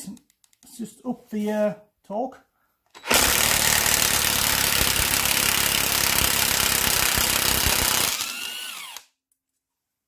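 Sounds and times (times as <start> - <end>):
motor winding down: 3.1 - 9.0.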